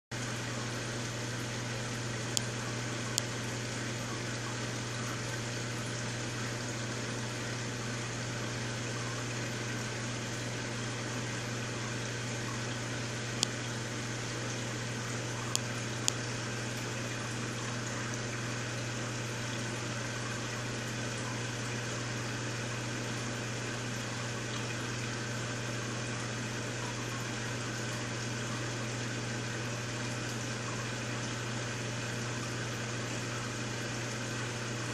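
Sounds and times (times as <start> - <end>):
aquarium pump humming: 0.1 - 34.9.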